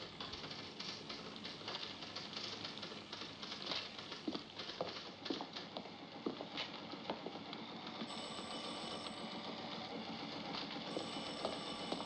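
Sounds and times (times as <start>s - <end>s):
typewriters clacking: 0.2s - 5.8s.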